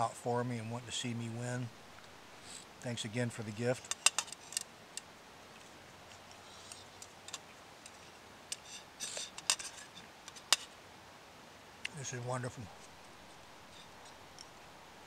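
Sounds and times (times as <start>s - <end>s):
spoon scraping metal cup: 8.6s - 10.0s.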